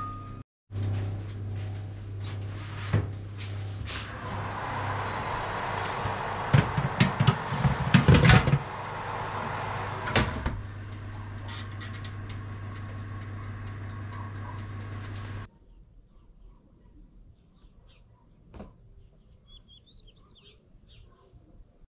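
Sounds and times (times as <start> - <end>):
oven humming: 0.7 - 15.5
oven door shutting: 5.8 - 8.7, 9.4 - 12.5.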